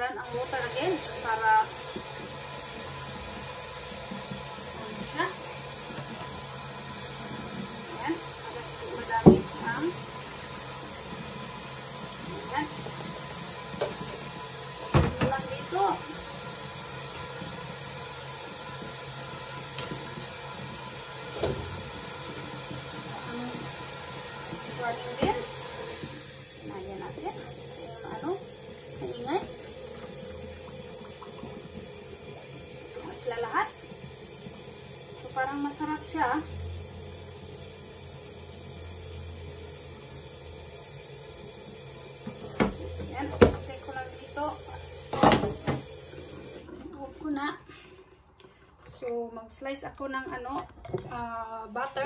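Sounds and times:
tap water running into sink: 0.2s - 51.2s
tap running into metal sink: 8.8s - 11.3s, 12.0s - 15.8s, 17.0s - 26.3s, 42.1s - 46.6s.

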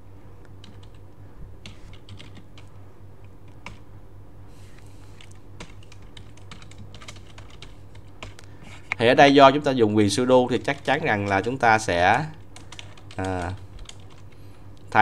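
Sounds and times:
steady low hum: 0.0s - 15.0s
keyboard keystrokes: 0.6s - 1.0s, 1.6s - 2.7s, 5.2s - 8.4s, 10.7s - 14.3s.

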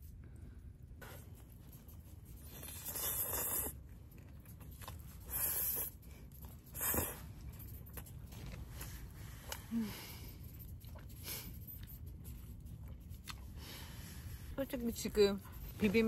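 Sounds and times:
quiet chewing: 0.1s - 16.0s
person slurping noodles: 2.7s - 3.8s.

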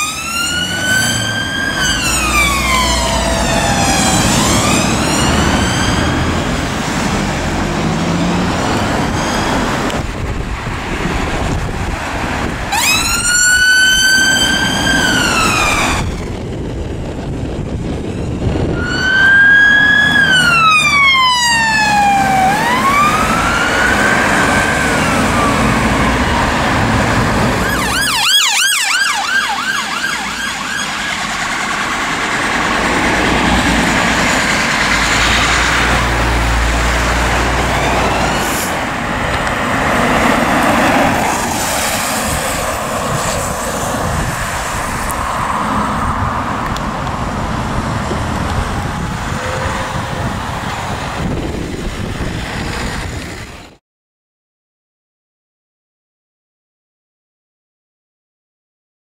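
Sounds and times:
fast siren yelp: 0.0s - 6.7s, 12.7s - 16.5s, 18.6s - 32.2s, 37.1s - 38.7s
siren wailing: 0.0s - 9.9s, 12.7s - 16.7s, 18.0s - 39.1s
road traffic noise: 0.0s - 53.8s
vehicle engine rumble: 0.0s - 53.8s.

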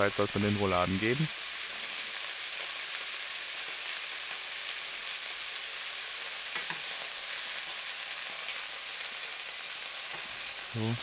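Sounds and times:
meat sizzling in a frying pan: 0.0s - 11.0s
fork knocking in pan: 6.5s - 6.9s.

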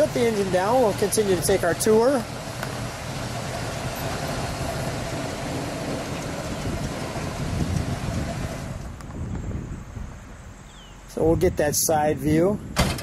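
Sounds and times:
car engine idling: 0.0s - 9.1s.

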